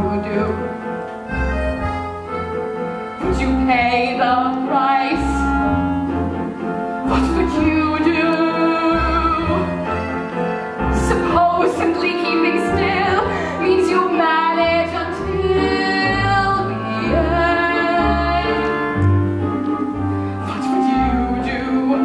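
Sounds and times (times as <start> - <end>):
woman singing: 0.0 - 0.8, 3.2 - 6.0, 7.0 - 10.2, 10.9 - 22.0
instrumental accompaniment: 0.0 - 22.0.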